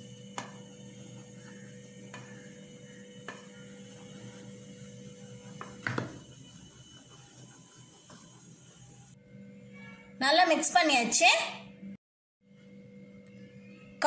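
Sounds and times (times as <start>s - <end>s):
spoon stirring dough in a bowl: 0.0s - 9.0s.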